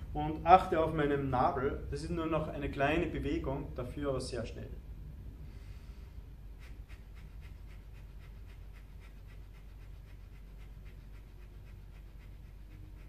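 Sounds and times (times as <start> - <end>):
rapid puffs of breath through nose: 5.4 - 13.0.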